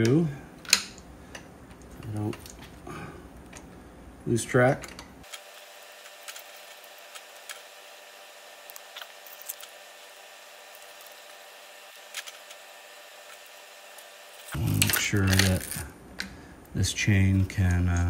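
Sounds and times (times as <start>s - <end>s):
steady low hum: 0.0s - 18.0s
chain clicks and metallic rattles: 14.6s - 15.9s.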